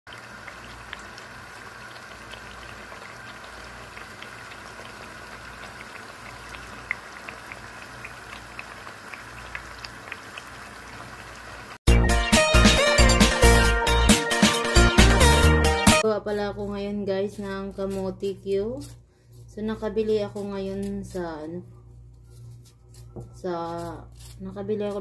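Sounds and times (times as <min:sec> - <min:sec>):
sweet potatoes sizzling in oil: 0:00.1 - 0:11.8
electronic music with a beat: 0:11.9 - 0:16.0.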